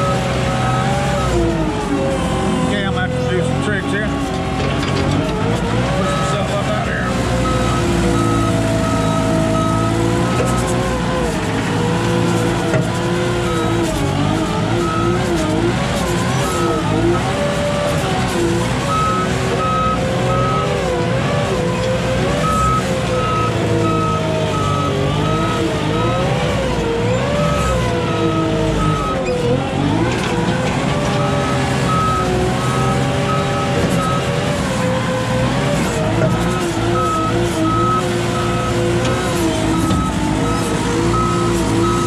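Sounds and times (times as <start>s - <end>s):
forklift engine working under load: 0.0s - 42.0s
high reversing alarm beeps: 7.4s - 10.6s, 31.2s - 34.4s, 36.3s - 38.8s, 39.6s - 42.0s.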